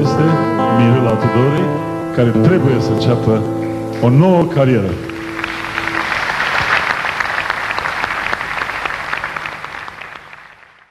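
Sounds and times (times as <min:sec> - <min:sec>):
audience applauding: 0:04.9 - 0:10.9.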